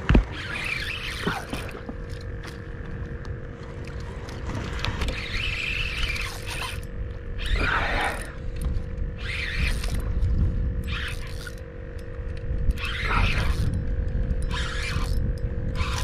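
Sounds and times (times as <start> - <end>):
fishing reel whirring and squeaking: 0.2 - 3.2, 3.8 - 16.0
wind on microphone: 4.4 - 11.5, 12.2 - 16.0.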